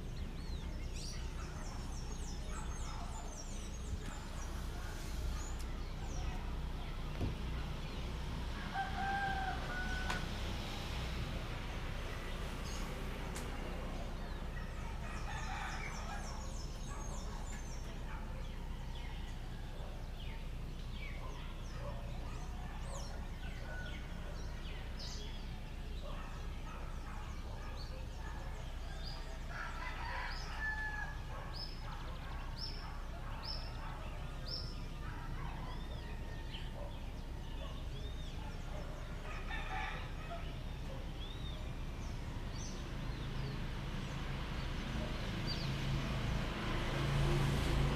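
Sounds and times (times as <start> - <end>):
roosters crowing: 1.0 - 13.2, 14.3 - 20.1, 28.7 - 35.1, 39.0 - 40.9.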